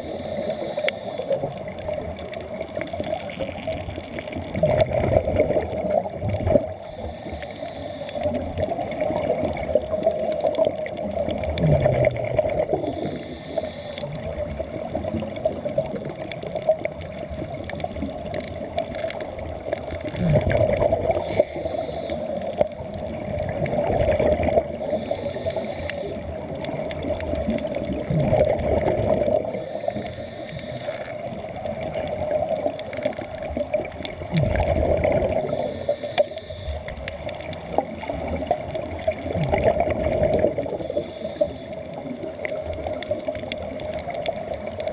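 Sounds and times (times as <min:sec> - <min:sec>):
underwater bubbling and gurgling: 0:00.0 - 0:44.9
steady hum: 0:24.6 - 0:26.3, 0:35.3 - 0:37.0.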